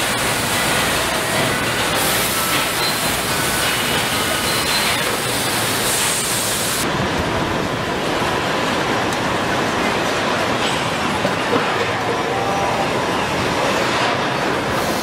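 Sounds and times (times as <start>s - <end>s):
high machine whines: 0.0s - 6.8s
assembly line noise: 0.0s - 6.9s.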